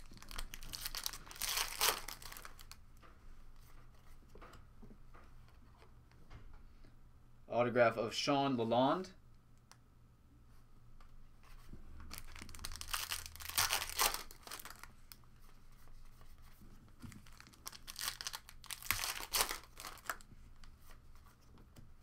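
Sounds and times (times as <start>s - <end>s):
foil wrapper tearing and crinkling: 0.0s - 2.8s, 12.1s - 14.9s, 17.2s - 20.2s.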